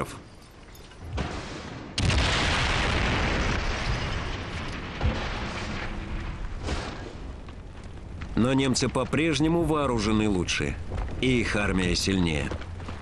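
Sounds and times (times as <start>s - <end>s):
gun firing blast: 1.1s - 7.3s.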